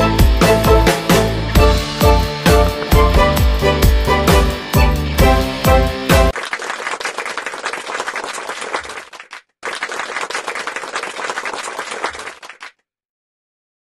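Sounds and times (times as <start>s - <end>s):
applause: 6.2s - 12.8s.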